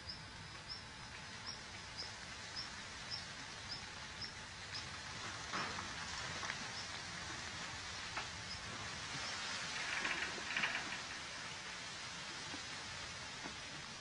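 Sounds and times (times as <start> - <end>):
rabbit scraping soil: 7.2 - 11.6.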